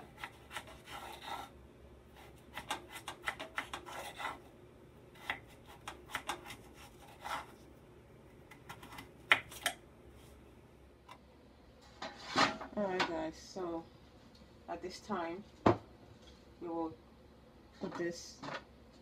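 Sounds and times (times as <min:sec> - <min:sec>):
knife slicing on wooden board: 0:00.0 - 0:01.5, 0:05.2 - 0:07.6.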